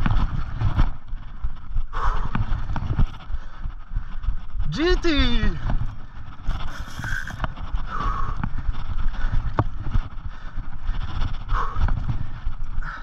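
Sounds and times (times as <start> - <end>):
low rumble of wind: 0.0 - 13.0
fishing reel being cranked: 6.7 - 7.4.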